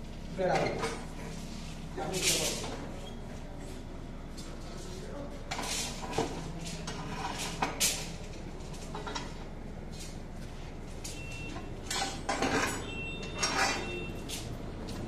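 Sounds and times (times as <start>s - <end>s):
steel rods clinking and clanking: 11.1s - 14.5s.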